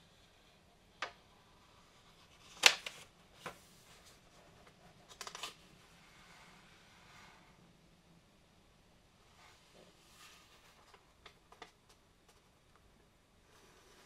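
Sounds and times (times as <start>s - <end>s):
sharp paper snap: 2.5s - 3.0s.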